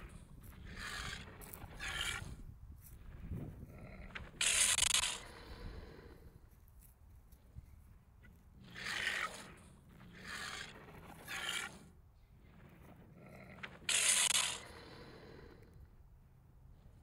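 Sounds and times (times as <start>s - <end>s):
raspy dinosaur growls: 0.0s - 2.4s, 3.0s - 6.4s, 8.5s - 15.9s.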